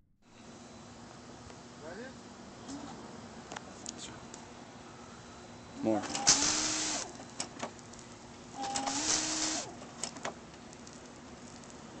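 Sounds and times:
washer pump whine: 6.1 - 7.2, 8.5 - 9.8.

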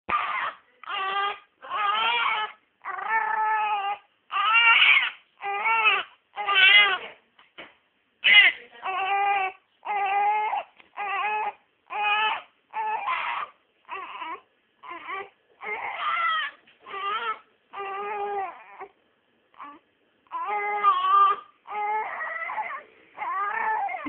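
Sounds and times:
baby crying in short wails: 0.1 - 7.0, 8.2 - 18.9.

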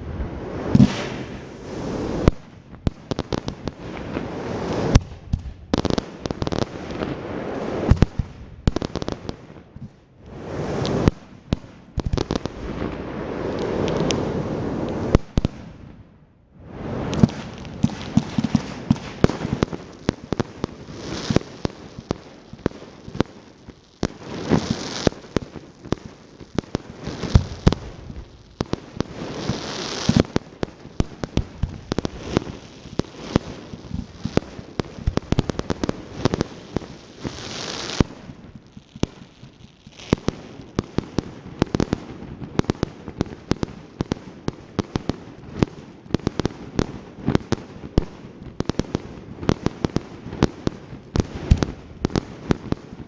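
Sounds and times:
fireworks hissing: 0.0 - 9.3, 10.2 - 11.3, 12.0 - 15.6, 16.6 - 42.0
fireworks crackle: 0.0 - 16.0, 16.6 - 53.0
fireworks bangs and pops: 0.0 - 53.0.

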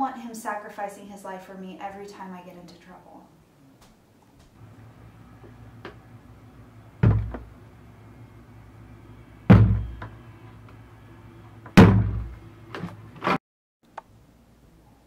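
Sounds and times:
loud heavy thuds: 7.0 - 7.5, 9.5 - 10.1, 11.7 - 12.4.

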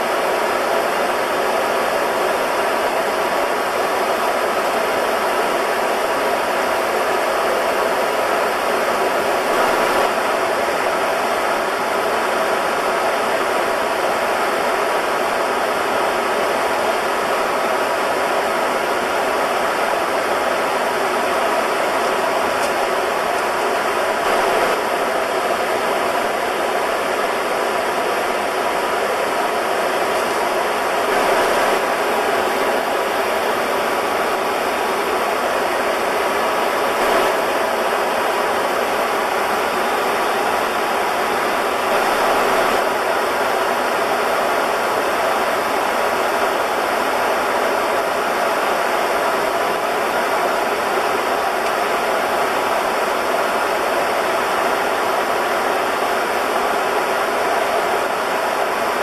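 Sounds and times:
air roaring past cockpit: 18.9 - 44.4.

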